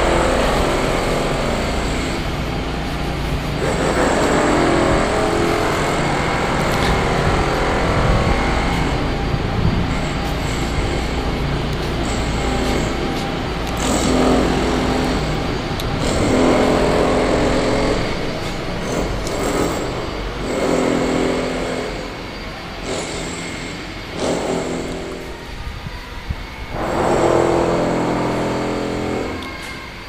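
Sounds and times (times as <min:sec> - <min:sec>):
vehicles passing: 0:00.0 - 0:20.4
steady low traffic hum: 0:00.0 - 0:30.0.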